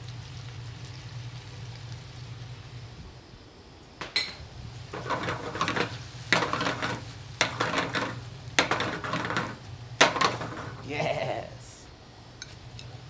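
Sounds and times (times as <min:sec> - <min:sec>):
utensil stirring and scraping sauce: 0:04.9 - 0:10.8
utensil knocking against pan: 0:05.0 - 0:10.7.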